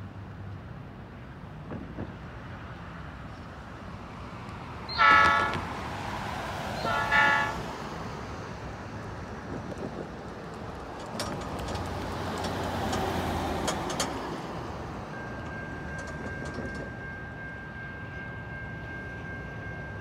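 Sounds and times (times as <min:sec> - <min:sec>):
locomotive horn blasts: 0:04.9 - 0:05.7, 0:06.8 - 0:07.7.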